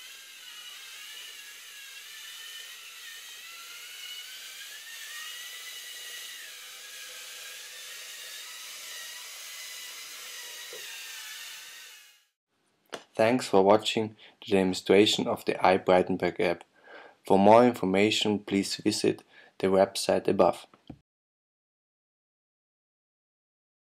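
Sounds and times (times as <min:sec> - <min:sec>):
servo motors whining: 0:00.0 - 0:12.3.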